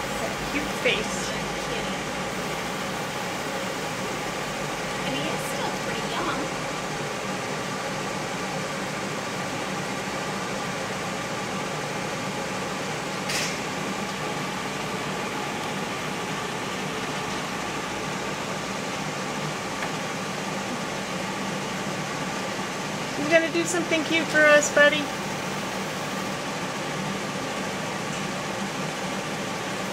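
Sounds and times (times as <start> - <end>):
mechanical hum with faint tones: 0.0 - 29.9.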